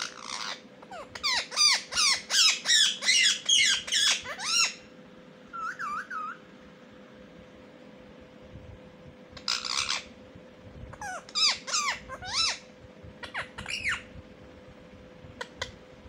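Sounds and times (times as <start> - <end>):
parakeets squawking: 0.0 - 4.9, 5.5 - 6.4, 9.4 - 10.2, 10.9 - 14.1
faint steady hum: 0.0 - 16.0.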